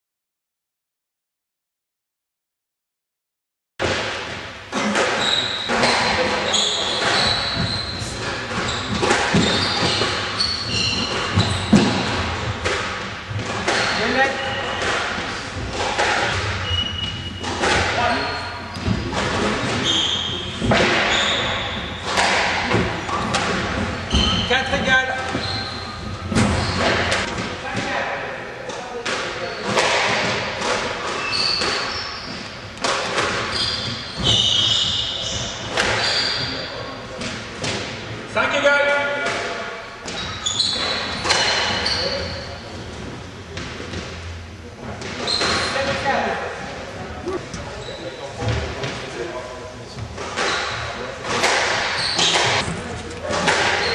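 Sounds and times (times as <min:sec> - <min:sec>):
squash ball hits: 0:03.8 - 0:10.3, 0:10.9 - 0:18.2, 0:18.8 - 0:24.4, 0:29.0 - 0:34.8, 0:50.2 - 0:53.9
shoes squeaking on court floor: 0:04.8 - 0:27.3, 0:29.3 - 0:37.0, 0:40.1 - 0:44.4, 0:45.0 - 0:53.9.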